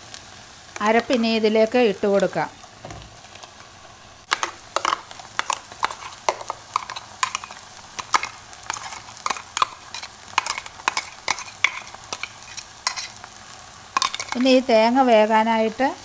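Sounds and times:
spoon tapping and scraping steel jar: 4.3s - 13.1s.

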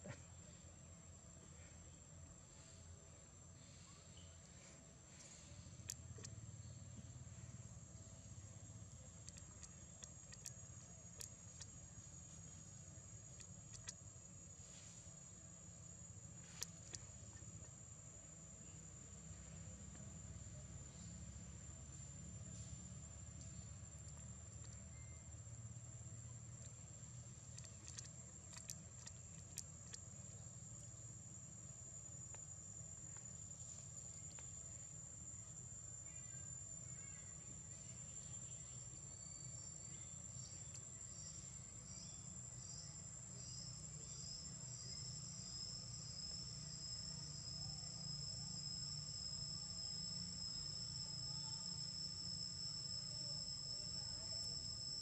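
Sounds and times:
faint clicks: 5.2s - 6.4s, 9.1s - 12.5s, 13.3s - 14.0s, 27.4s - 30.5s
high wavering insect call: 5.2s - 55.0s
insects shrilling: 8.1s - 17.6s, 26.5s - 55.0s.

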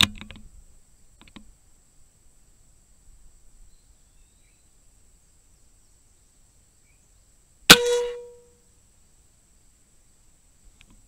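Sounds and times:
air rifle shot: 7.7s - 8.3s.

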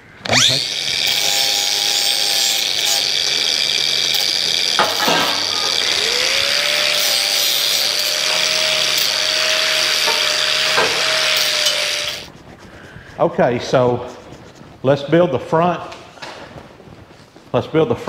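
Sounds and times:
angle grinders whining: 0.0s - 12.3s.

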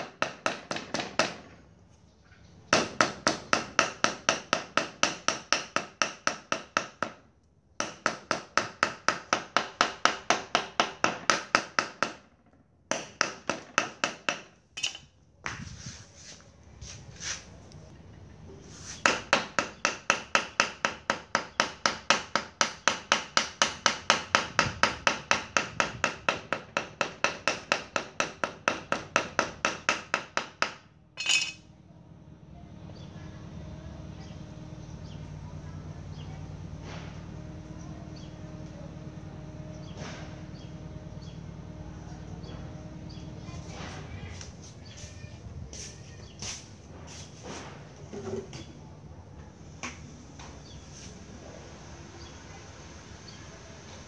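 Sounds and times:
handling noise: 31.2s - 31.6s.

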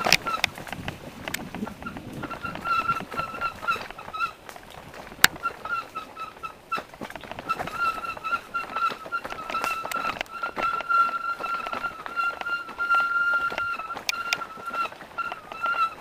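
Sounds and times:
mountain bikes rattling on dirt trail: 0.0s - 16.0s
high squeak: 7.5s - 16.0s.

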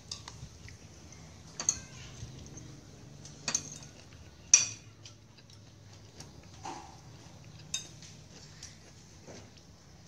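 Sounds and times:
spoons clinking on plates: 0.0s - 0.4s, 1.5s - 2.6s, 3.2s - 5.2s, 7.7s - 8.1s.

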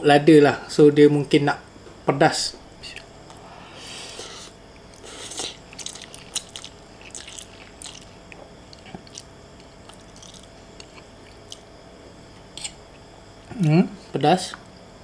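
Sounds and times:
wet chewing clicks: 4.8s - 11.7s.

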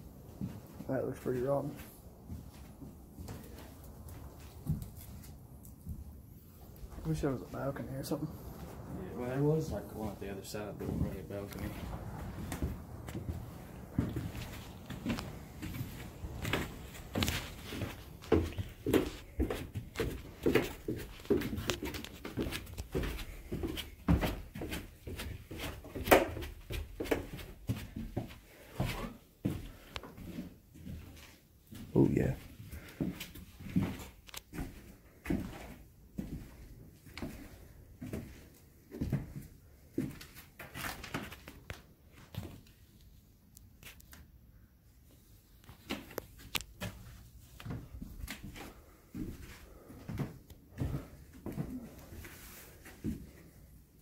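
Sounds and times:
footsteps going down stairs: 0.0s - 42.7s, 45.6s - 54.0s
low thuds: 8.3s - 19.8s.

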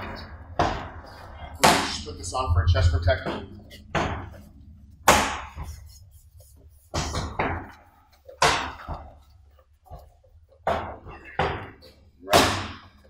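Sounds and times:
sharp slaps: 1.6s - 2.1s, 5.0s - 5.7s, 12.3s - 13.0s.

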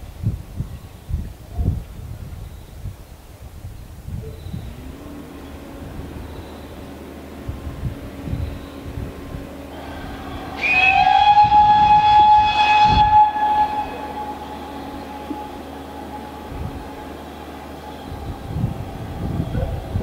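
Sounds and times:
steam locomotive whistle: 9.6s - 20.0s.

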